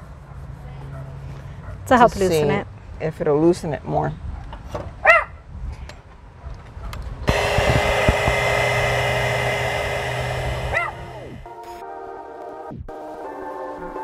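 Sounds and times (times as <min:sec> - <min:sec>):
heat gun fan humming: 0:07.3 - 0:11.5
music: 0:11.4 - 0:14.0.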